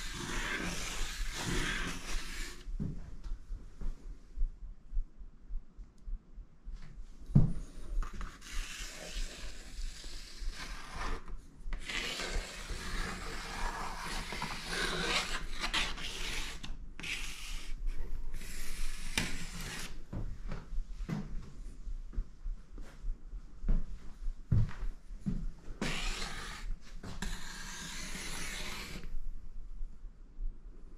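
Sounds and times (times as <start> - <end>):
charcoal scratching on paper: 0.0 - 2.6, 8.2 - 17.8, 18.4 - 20.0, 25.8 - 29.1.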